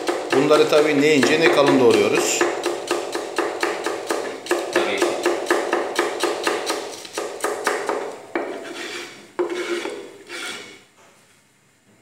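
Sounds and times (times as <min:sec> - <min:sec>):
knife chopping on cutting board: 0:00.0 - 0:10.0
knife scraping across board: 0:08.4 - 0:10.9.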